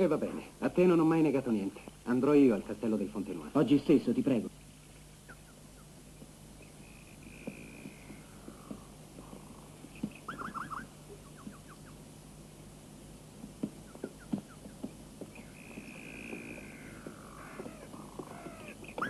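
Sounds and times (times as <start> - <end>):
steady low hum: 0.0 - 19.0
birds whistling and chirping: 9.9 - 12.0, 13.8 - 19.0.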